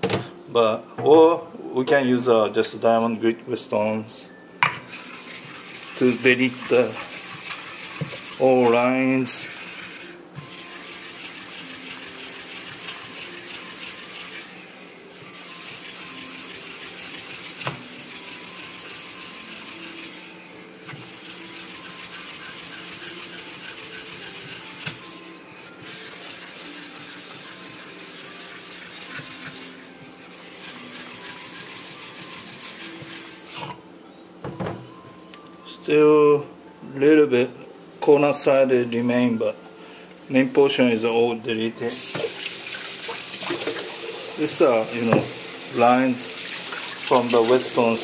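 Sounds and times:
block scraping on whetstone: 0:04.9 - 0:14.5, 0:15.4 - 0:20.2, 0:20.9 - 0:25.1, 0:25.8 - 0:33.8.

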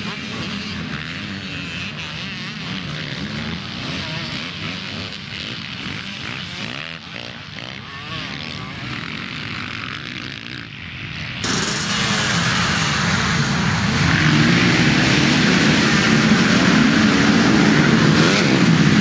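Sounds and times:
motocross bikes revving: 0:00.0 - 0:19.0.

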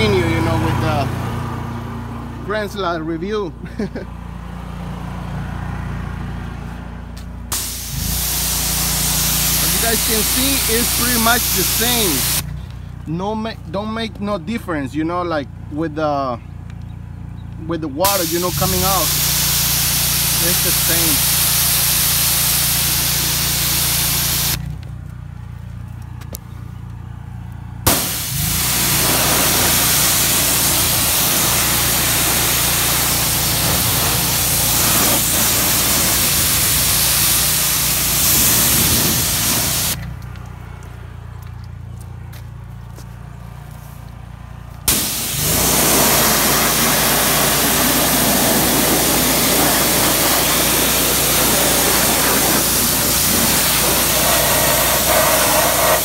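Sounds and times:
pressure washer spraying: 0:07.5 - 0:12.4, 0:18.0 - 0:24.6, 0:27.9 - 0:40.0, 0:44.9 - 0:56.0.

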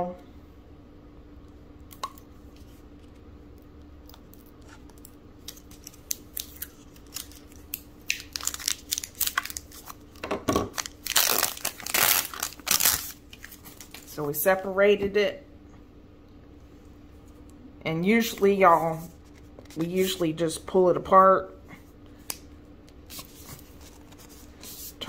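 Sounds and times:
plastic crinkles and clicks: 0:03.0 - 0:14.1
plastic tearing rasps: 0:04.3 - 0:14.0.

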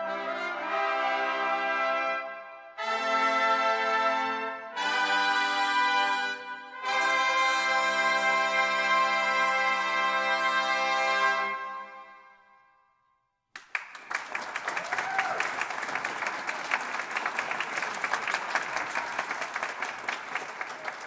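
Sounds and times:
trumpet ensemble chord: 0:00.0 - 0:12.6
audience applause: 0:13.6 - 0:21.0.

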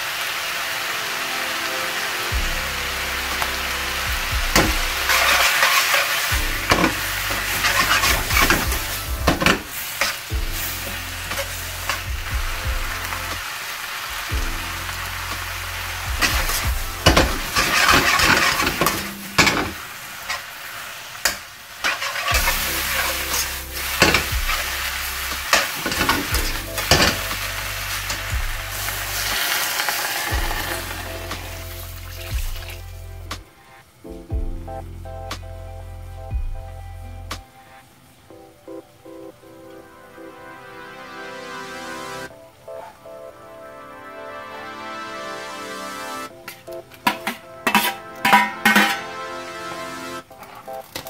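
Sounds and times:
vegetables sizzling in wok: 0:00.0 - 0:04.0, 0:04.9 - 0:12.1, 0:12.9 - 0:33.0
metal spatula scraping wok: 0:05.1 - 0:12.1, 0:16.2 - 0:20.5, 0:47.1 - 0:49.2.

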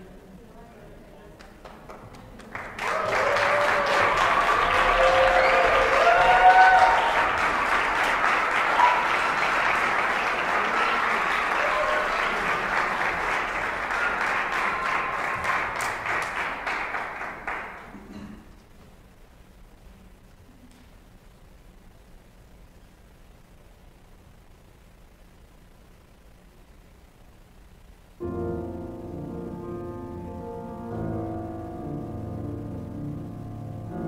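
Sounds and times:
audience applauding: 0:01.4 - 0:18.2
short cheers: 0:02.8 - 0:12.8.

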